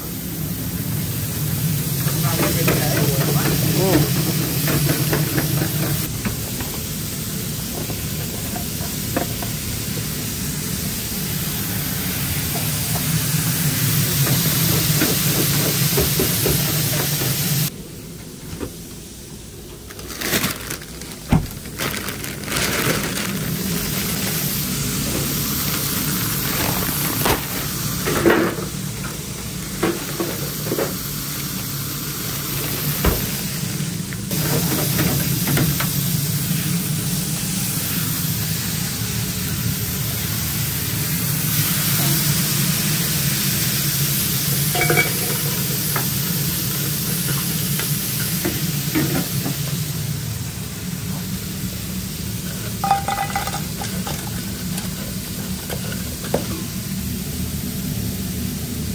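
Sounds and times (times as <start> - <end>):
fries sizzling in deep fryer: 0.0 - 17.8, 18.7 - 58.9
plastic bags rustling: 19.8 - 27.9.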